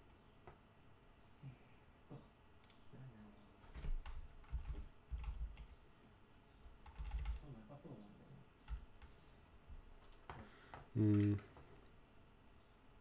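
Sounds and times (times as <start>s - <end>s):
computer keyboard typing: 4.0s - 5.8s, 6.8s - 7.4s, 8.6s - 9.2s, 10.0s - 11.4s.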